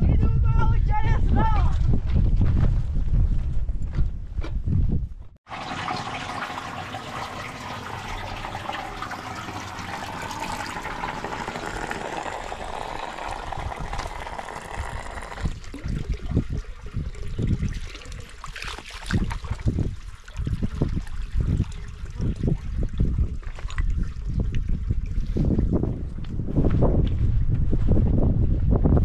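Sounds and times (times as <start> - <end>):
running water rushing: 5.5 - 22.6.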